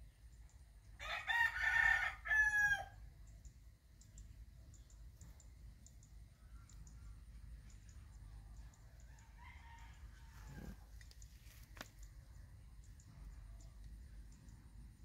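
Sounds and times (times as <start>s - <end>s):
rooster crowing: 1.0s - 3.0s, 9.1s - 10.8s.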